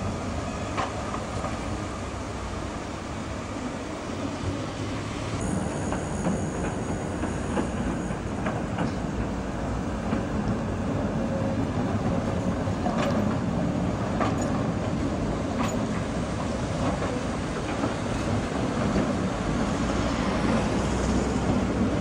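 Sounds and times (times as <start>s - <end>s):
tram running gear rumble: 0.0s - 22.0s
wheels clicking over rail joints: 11.8s - 19.3s.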